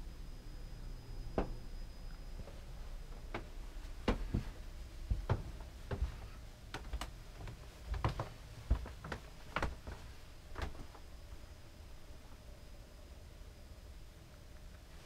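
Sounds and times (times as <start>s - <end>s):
footsteps: 2.4s - 11.0s.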